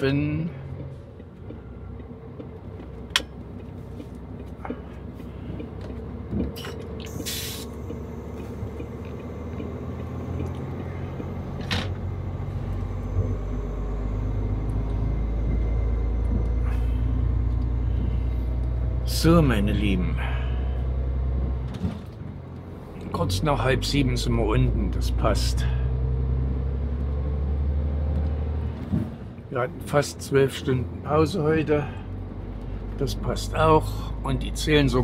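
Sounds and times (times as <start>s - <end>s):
truck diesel engine running: 0.0s - 35.0s
short hisses: 7.1s - 7.8s.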